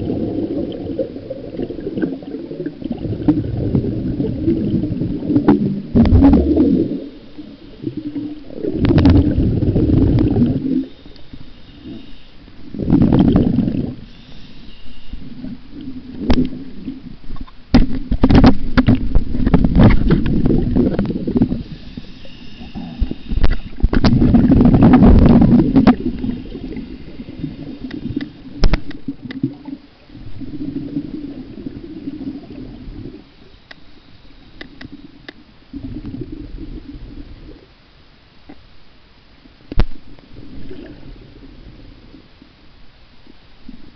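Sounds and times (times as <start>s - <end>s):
muffled underwater gurgling: 0.0s - 33.5s.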